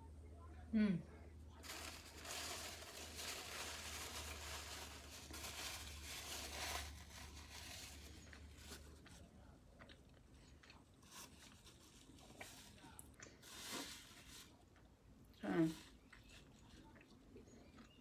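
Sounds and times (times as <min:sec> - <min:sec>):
foil tray crinkling: 0:01.6 - 0:09.0.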